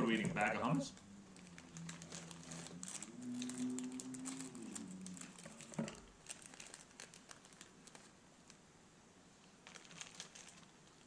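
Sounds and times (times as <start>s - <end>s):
plastic snack bag crinkling: 0.6s - 8.6s, 9.6s - 11.0s
person humming: 1.7s - 5.8s.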